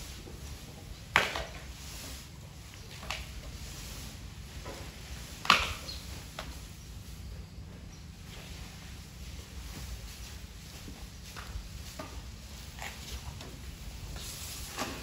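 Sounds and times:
elephant crunching stalks: 4.7s - 6.6s.

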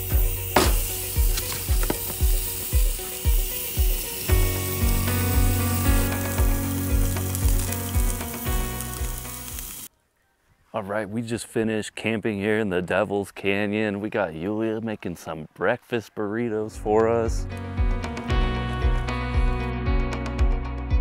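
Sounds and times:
background music with steady beat: 0.0s - 9.8s, 16.8s - 21.0s
sausages sizzling in pan: 0.0s - 9.9s.

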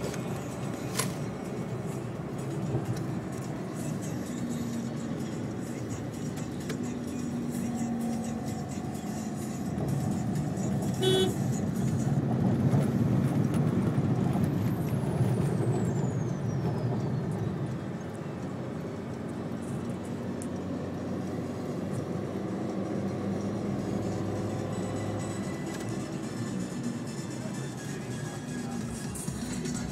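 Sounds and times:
car engine and road noise: 0.0s - 29.9s
short horn beep: 11.0s - 11.4s.

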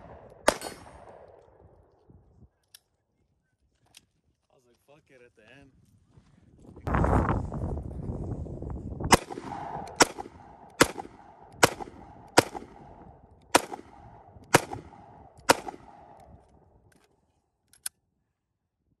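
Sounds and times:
pistol shots with echo: 0.0s - 1.4s, 9.1s - 16.3s.

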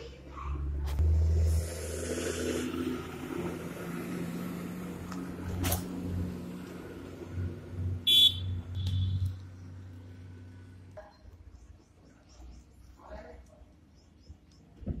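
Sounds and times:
motorcycle passing: 0.0s - 11.4s
heavy vehicle engines humming: 0.0s - 14.8s.

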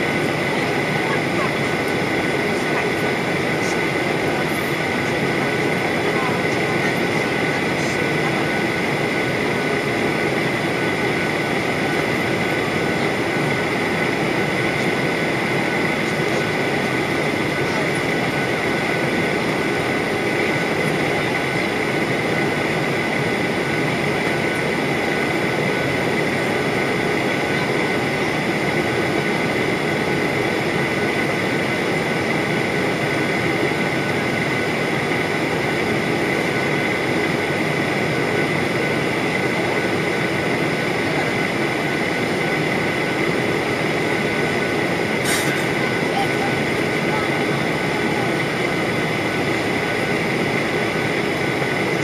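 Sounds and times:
high whine: 0.0s - 52.0s
jet engine cabin drone: 0.0s - 52.0s.

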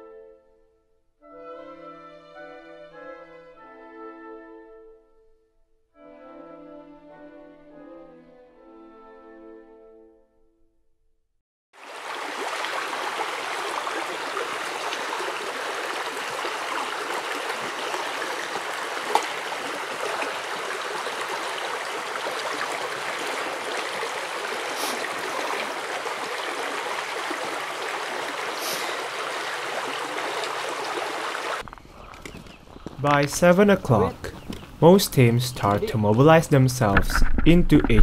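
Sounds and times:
stream rushing: 11.8s - 31.6s.

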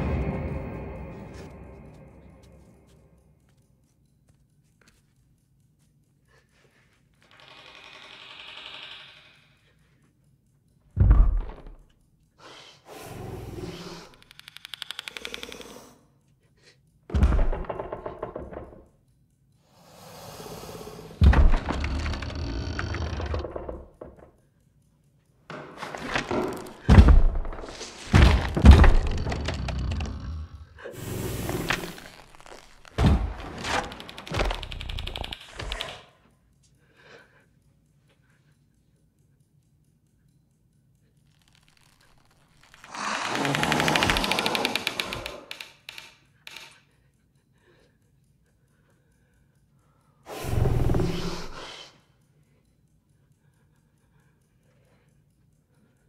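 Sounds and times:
rapid creature clicks: 11.5s - 16.2s, 19.6s - 56.0s.

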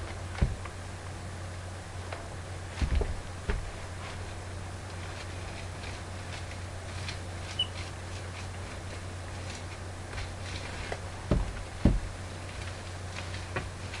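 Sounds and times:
dull thumps: 0.0s - 0.8s, 2.2s - 4.3s, 8.2s - 14.0s
low hum: 0.0s - 14.0s
paint applicator scratching stucco: 3.8s - 14.0s.

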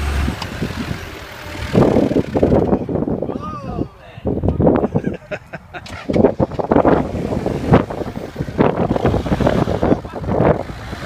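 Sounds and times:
off-road vehicle engine running: 0.0s - 3.2s, 5.8s - 11.0s
wind buffeting microphone: 0.0s - 11.0s.

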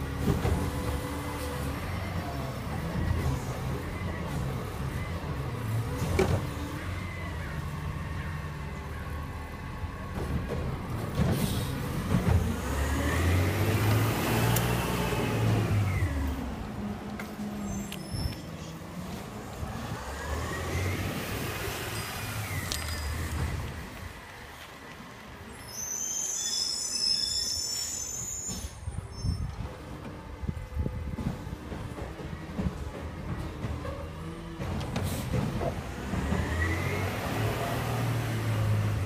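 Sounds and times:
garbage truck diesel engine revving: 10.9s - 17.0s.

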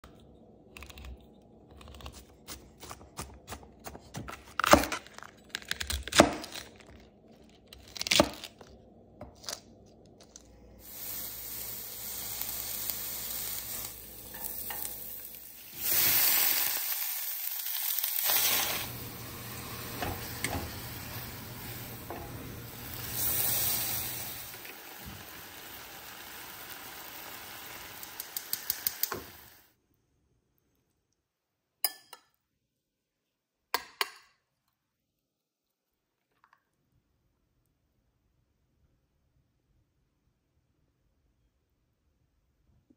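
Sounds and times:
oil sizzling in a frying pan: 10.8s - 29.7s.

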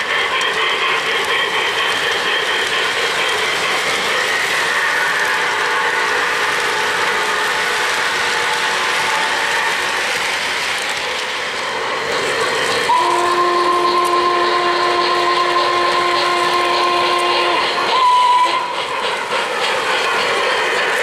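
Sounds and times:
model trains rattling on track: 0.0s - 21.0s
electronic steam whistle: 2.6s - 10.0s, 12.8s - 18.9s.

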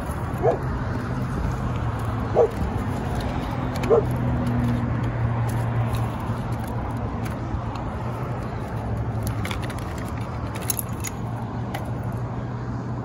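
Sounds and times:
clicks and rustles of handled tools: 0.0s - 12.3s
low engine hum: 0.0s - 13.0s
outdoor noise: 0.0s - 13.0s.

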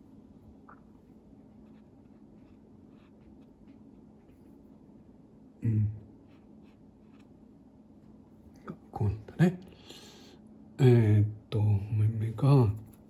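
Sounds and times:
brush strokes on paper: 0.9s - 5.1s, 6.2s - 7.5s.

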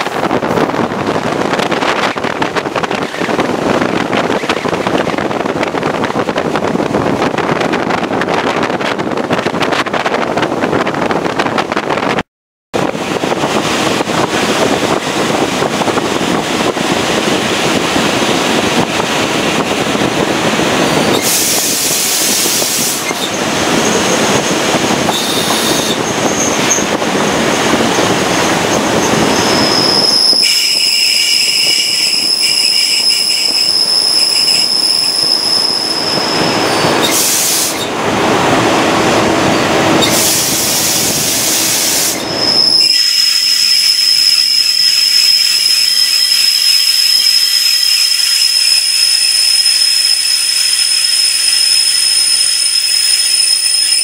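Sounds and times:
loud rushing rail noise: 0.0s - 12.2s, 12.8s - 54.0s
high-pitched wheel squeal: 21.0s - 26.9s, 27.5s - 37.9s, 39.5s - 54.0s.

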